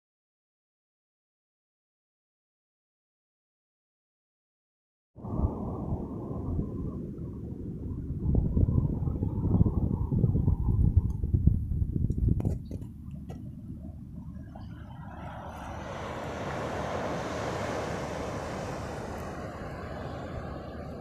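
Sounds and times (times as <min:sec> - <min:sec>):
waves washing onto beach: 0:05.2 - 0:10.1, 0:13.1 - 0:21.0
wind buffeting microphone: 0:05.2 - 0:21.0.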